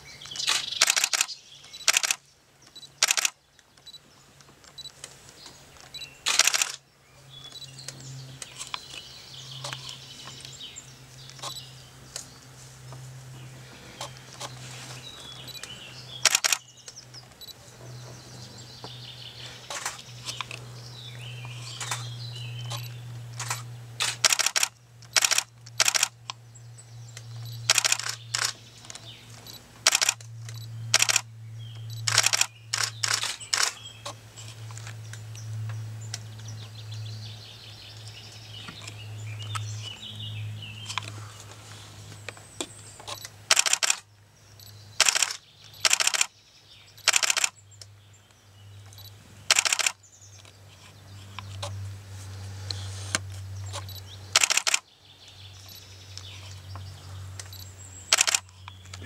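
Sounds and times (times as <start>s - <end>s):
faint birdsong: 0.0s - 59.0s
sharp clicks in clusters: 0.2s - 6.8s, 9.6s - 12.3s, 15.4s - 17.6s, 19.7s - 20.6s, 21.4s - 26.4s, 27.1s - 36.3s, 43.0s - 48.0s, 48.8s - 51.8s, 52.6s - 59.0s.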